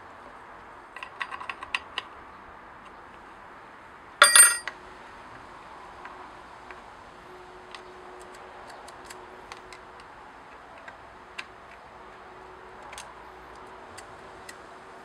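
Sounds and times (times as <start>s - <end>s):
screwdriver clicking on chain: 4.2s - 4.7s.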